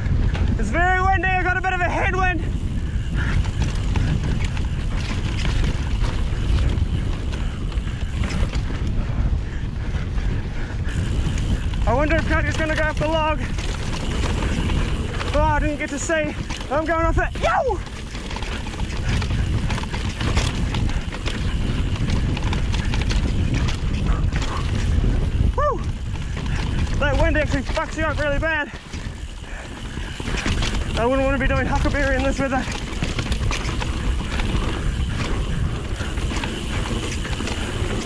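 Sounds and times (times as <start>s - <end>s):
bike tyres rattling on dirt: 0.0s - 38.0s
wind buffeting microphone: 0.0s - 38.0s.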